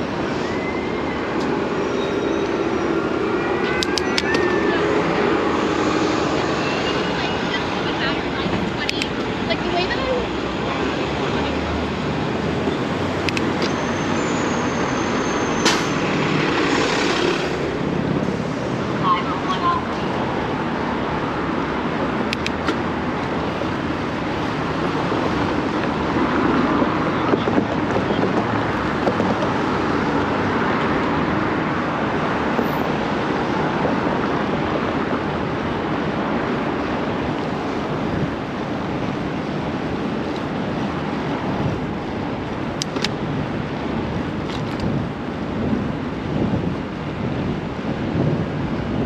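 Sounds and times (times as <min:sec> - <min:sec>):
city traffic rushing: 0:00.0 - 0:49.0
wind on microphone: 0:20.1 - 0:49.0.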